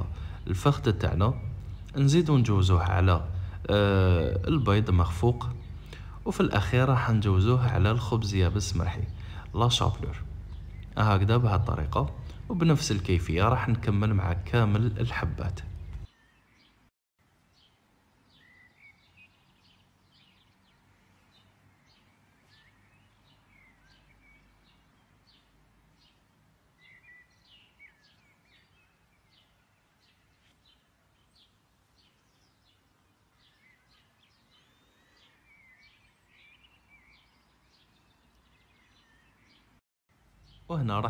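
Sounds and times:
faint bird chirps: 0.0 - 16.9, 17.5 - 39.8.

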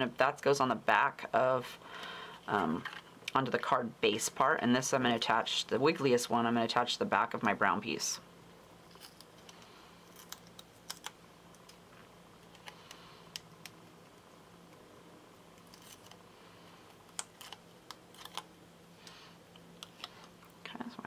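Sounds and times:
low steady hum: 0.0 - 21.0
plastic clicks and crinkles: 8.9 - 11.8, 16.9 - 18.5.

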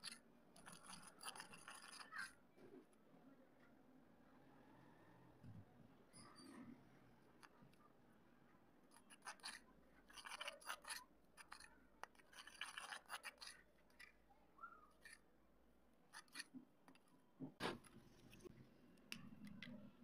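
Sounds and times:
metal spoon scraping clay bowl: 0.0 - 2.4, 8.9 - 14.2, 16.2 - 16.6.

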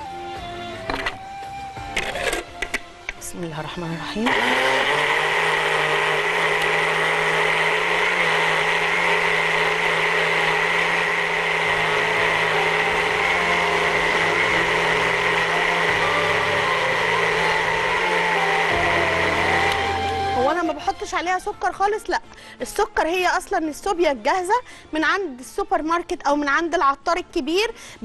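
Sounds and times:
blender whining: 0.0 - 2.8, 4.1 - 21.6.

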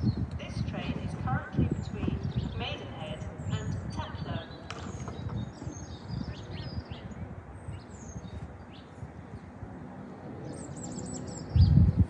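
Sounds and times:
small birds chirping: 0.0 - 9.6, 10.4 - 12.0
low outdoor rumble: 0.0 - 10.6.

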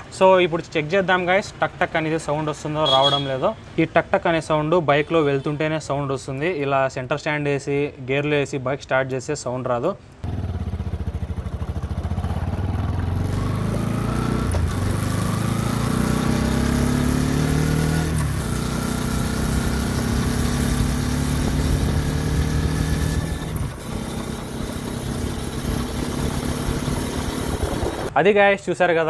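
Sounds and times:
wind and road noise: 10.1 - 28.2
motorcycle engine accelerating: 10.2 - 28.1.

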